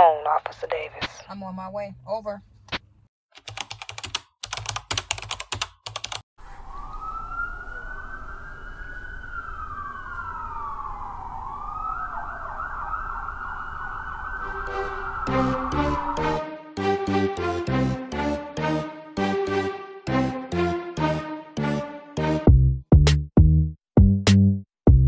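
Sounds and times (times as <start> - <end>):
keyboard typing clicks: 3.4 - 6.2
fast warbling siren: 6.4 - 17.2
police siren wailing: 6.4 - 19.9
music: 14.5 - 25.0.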